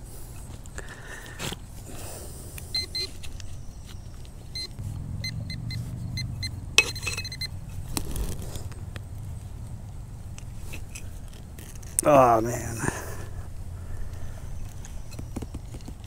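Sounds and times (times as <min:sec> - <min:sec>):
metal detector beeps: 0:02.7 - 0:03.3, 0:04.5 - 0:07.6.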